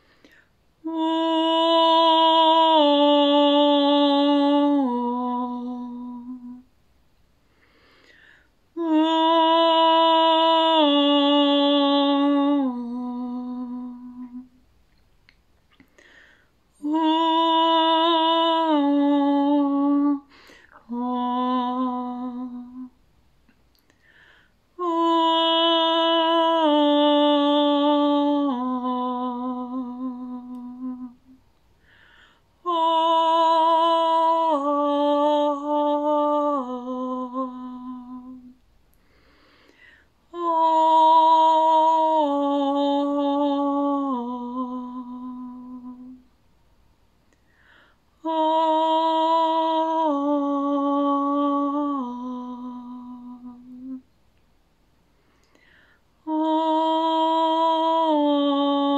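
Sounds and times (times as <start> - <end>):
breath: 0.0 - 0.6, 7.4 - 8.6, 15.8 - 16.6, 20.3 - 20.8, 23.9 - 24.6, 31.8 - 32.5, 39.0 - 40.2, 47.4 - 48.1, 55.1 - 56.2
woman singing wordless tones: 0.0 - 6.8, 8.6 - 14.7, 15.9 - 23.1, 23.7 - 38.7, 40.1 - 46.4, 48.1 - 54.2, 55.4 - 58.9.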